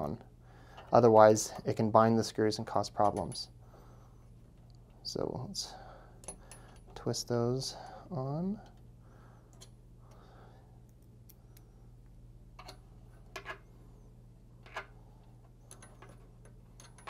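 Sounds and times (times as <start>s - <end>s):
low steady hum: 0.0s - 17.0s
metal screws clicking and tapping: 15.6s - 17.0s.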